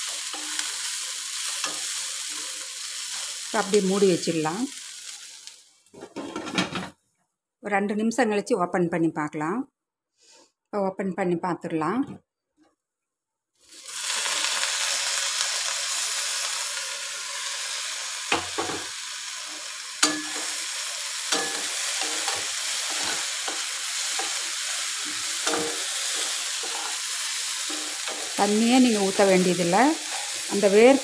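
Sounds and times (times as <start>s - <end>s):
vegetables sizzling in a pan: 0.0s - 6.3s, 13.6s - 31.0s.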